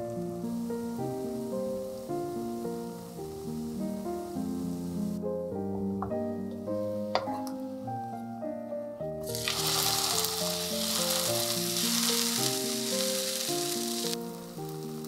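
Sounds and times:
soft piano music: 0.0s - 15.0s
food sizzling in a pan: 9.2s - 15.0s.

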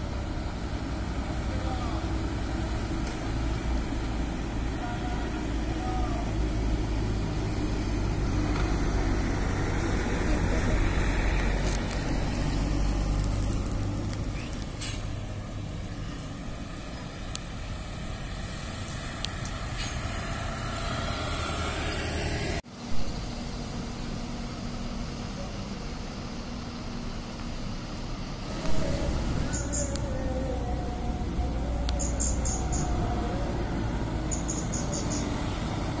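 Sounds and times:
diesel engines idling: 0.0s - 36.0s
motorcycle riding past: 18.2s - 22.6s.

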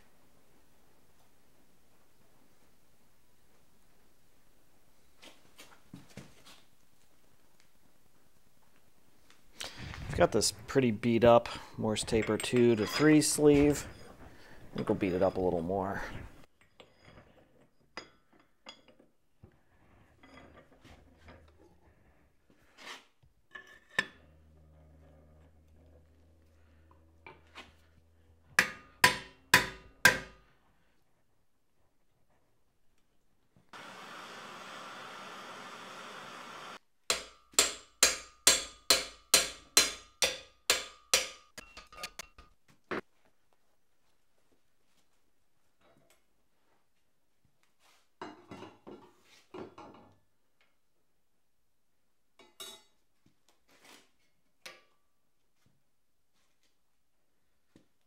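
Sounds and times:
metal scraping: 10.0s - 16.4s
propane torch hissing: 33.8s - 36.8s.

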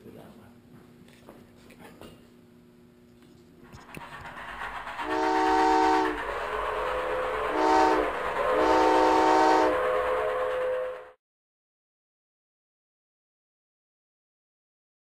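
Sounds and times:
train rumbling: 3.6s - 11.2s
steam locomotive whistle: 5.0s - 11.2s.

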